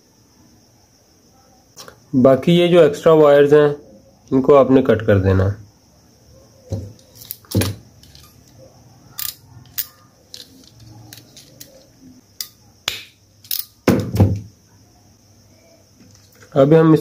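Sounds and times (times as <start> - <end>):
small connector parts handled: 6.7 - 12.6, 13.4 - 14.2.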